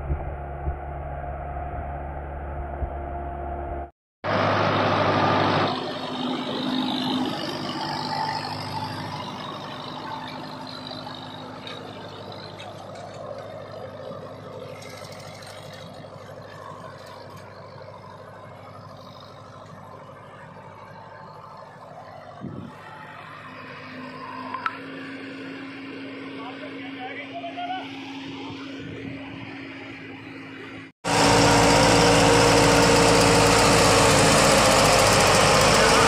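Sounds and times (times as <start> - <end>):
tractor diesel engine under load: 1.9 - 27.0, 27.9 - 36.0.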